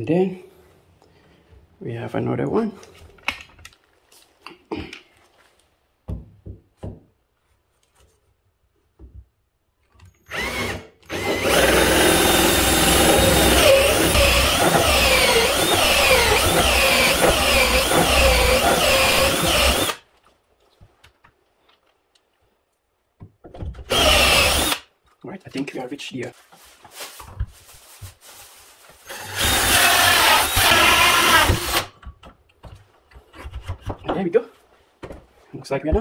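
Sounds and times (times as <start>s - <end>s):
electric drill boring into wood: 10.3s - 20.0s, 23.9s - 24.8s, 29.0s - 31.9s.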